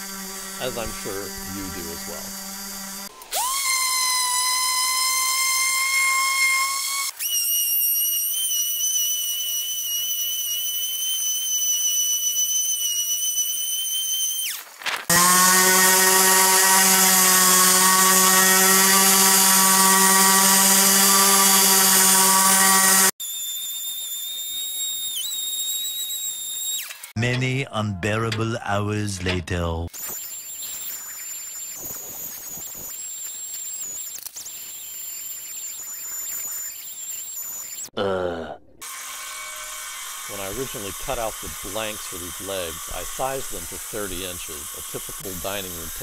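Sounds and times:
orbit sander on wood: 0.0s - 7.1s, 15.0s - 24.7s, 38.8s - 46.0s.

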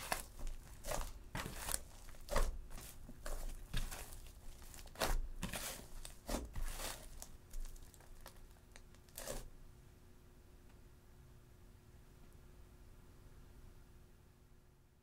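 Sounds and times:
slime squishing and crackling: 0.0s - 9.5s.

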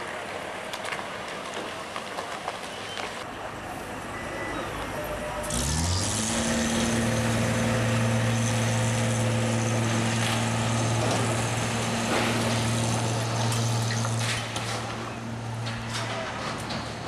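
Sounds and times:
truck engine and water pump running: 4.9s - 17.0s.

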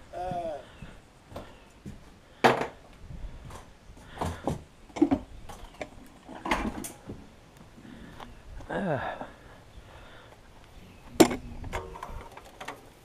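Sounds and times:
footsteps on wooden boards: 0.1s - 5.8s
knocks and clatters of handling: 3.5s - 7.2s, 11.2s - 13.0s.

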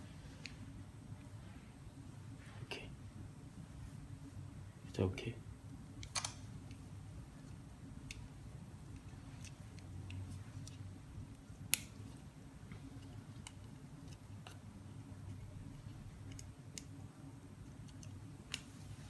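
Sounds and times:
low steady hum: 0.0s - 19.0s
small phone parts clicking: 6.0s - 6.8s.

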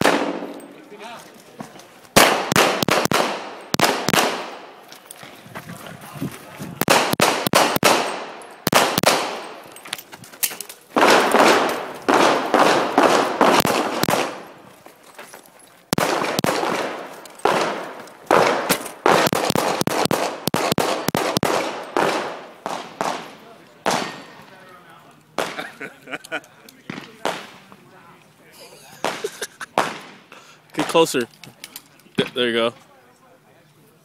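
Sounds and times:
pistol shots echoing: 0.0s - 0.8s, 2.2s - 4.8s, 6.8s - 9.7s, 11.0s - 14.6s, 15.9s - 24.3s.

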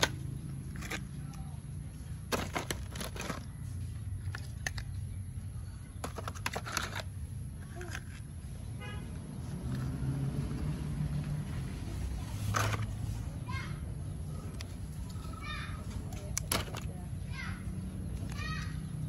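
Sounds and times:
plastic toy cars clicking in mud: 0.0s - 8.5s, 12.3s - 13.0s, 14.4s - 17.0s, 18.0s - 19.0s.

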